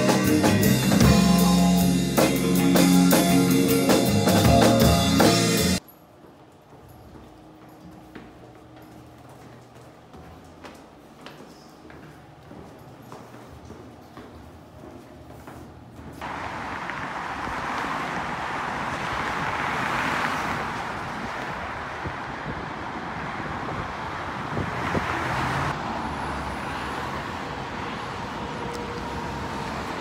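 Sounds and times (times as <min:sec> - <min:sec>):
road and tyre noise: 0:13.6 - 0:30.0.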